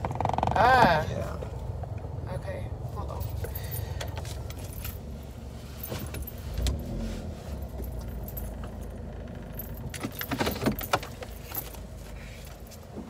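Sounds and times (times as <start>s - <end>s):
steady low rumble: 0.0s - 13.0s
small objects jangling and clinking: 3.1s - 12.8s
clicks and rustles: 9.4s - 13.0s.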